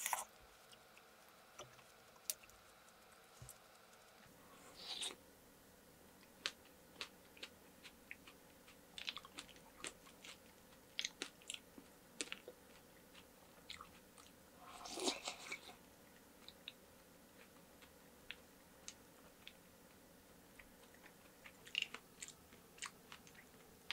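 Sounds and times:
crunching and wet chewing: 0:06.2 - 0:23.9.

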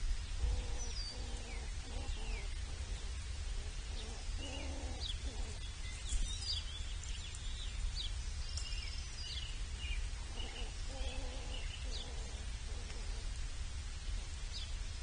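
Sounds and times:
low stacked bird calls: 0:00.0 - 0:15.0
low steady rumble: 0:00.0 - 0:15.0
small birds chirping: 0:00.0 - 0:15.0.

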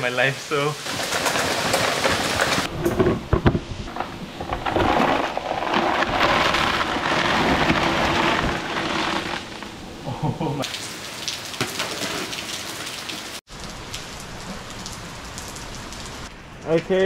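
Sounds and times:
heavy rain hissing: 0:00.0 - 0:02.7.

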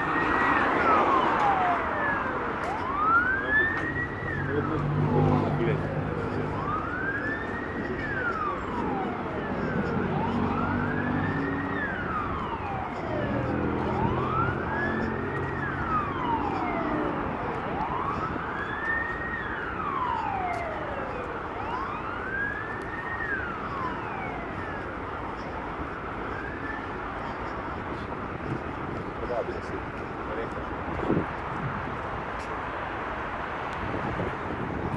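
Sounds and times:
emergency siren wailing: 0:00.0 - 0:34.9
vehicle engine humming: 0:00.0 - 0:34.9.

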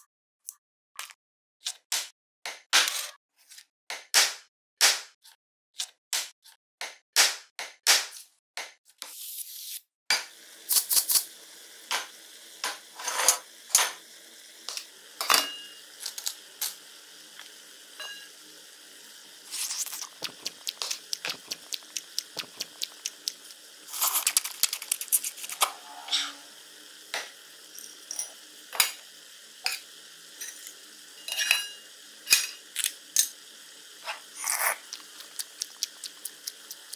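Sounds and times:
pot and dishes clinking: 0:15.2 - 0:15.8, 0:18.0 - 0:18.3, 0:31.2 - 0:32.6.

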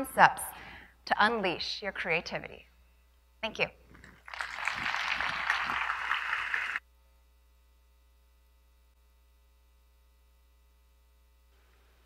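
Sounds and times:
faint electrical hum: 0:00.0 - 0:12.0
audience applauding: 0:04.2 - 0:06.8.

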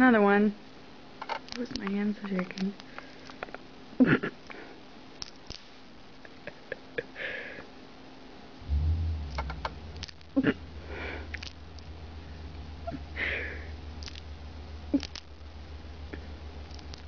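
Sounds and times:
low rumble: 0:08.6 - 0:17.0
hedgehog chewing: 0:11.3 - 0:12.4, 0:13.9 - 0:15.5, 0:16.1 - 0:17.0.

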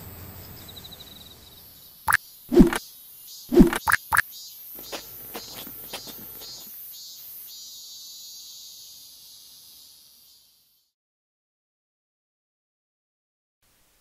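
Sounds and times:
insects chirring: 0:00.2 - 0:10.9.

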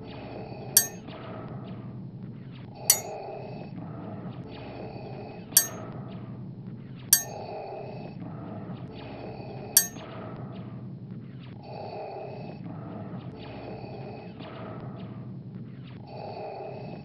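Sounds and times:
spoon clinking in ceramic mug: 0:00.8 - 0:01.0, 0:02.9 - 0:03.1, 0:05.6 - 0:05.8, 0:07.2 - 0:07.4.

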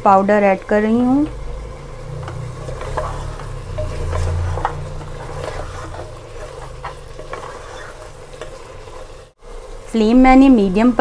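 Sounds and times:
sizzling in oil: 0:00.0 - 0:11.0
low hum: 0:01.0 - 0:07.3
spatula scraping pot: 0:01.8 - 0:09.3.

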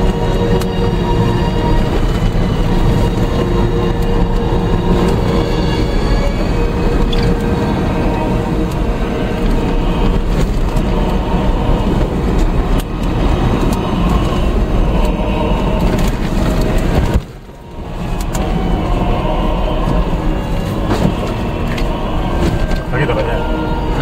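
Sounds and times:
vehicle engine and tyres rumbling: 0:00.0 - 0:24.0.

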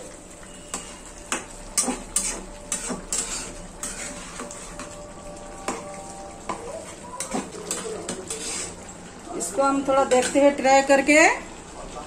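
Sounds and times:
spatula scraping frying pan: 0:00.6 - 0:05.0, 0:05.6 - 0:09.0.

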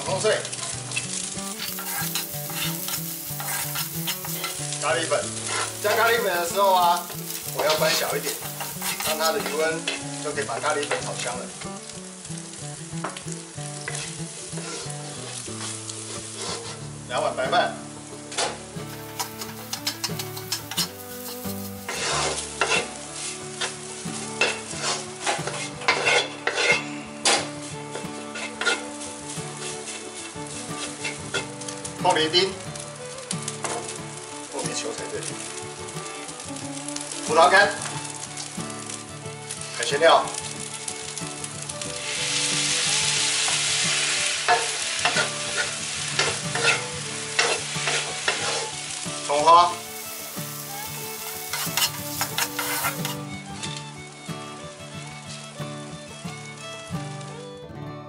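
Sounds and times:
rice sizzling in a wok: 0:00.0 - 0:57.5
wooden spatula scraping: 0:01.4 - 0:09.9, 0:13.9 - 0:14.9, 0:15.6 - 0:16.8, 0:18.8 - 0:23.8, 0:24.4 - 0:27.4, 0:28.3 - 0:31.5, 0:42.0 - 0:53.3.

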